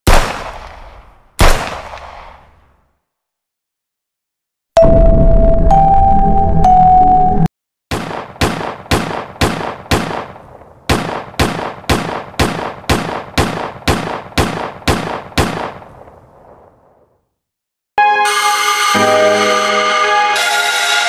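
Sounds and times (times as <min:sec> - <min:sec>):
video game gunshots echoing: 0:00.1 - 0:02.8, 0:07.9 - 0:16.8.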